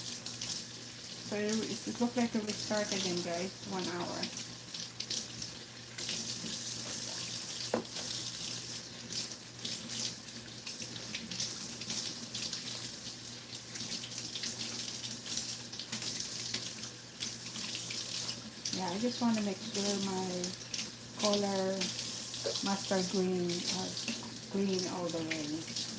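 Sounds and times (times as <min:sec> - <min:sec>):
faucet running: 0:00.0 - 0:25.9.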